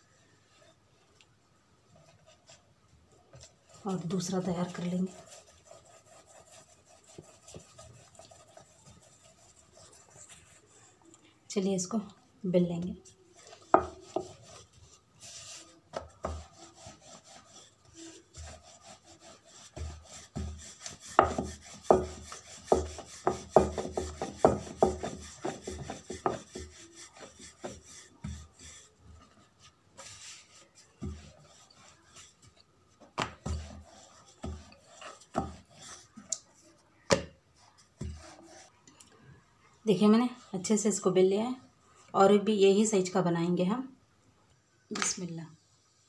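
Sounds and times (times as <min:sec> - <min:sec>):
rolling pin knocking on board: 0:21.2 - 0:26.7.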